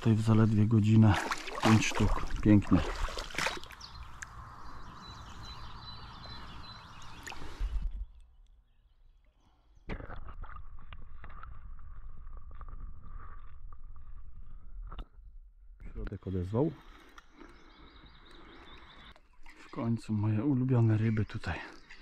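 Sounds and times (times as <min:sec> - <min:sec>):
water sloshing: 0:00.0 - 0:07.9
muffled underwater clicks: 0:03.4 - 0:04.5.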